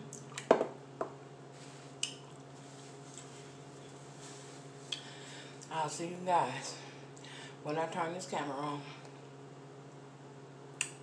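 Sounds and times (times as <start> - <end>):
faint steady hum: 0.0 - 11.0
dishes knocking on counter: 0.5 - 1.2.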